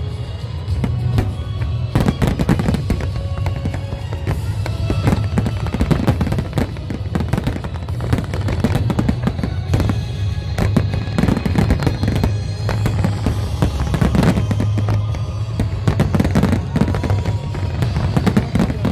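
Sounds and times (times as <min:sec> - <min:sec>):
fireworks bangs and crackles: 0:00.0 - 0:18.9.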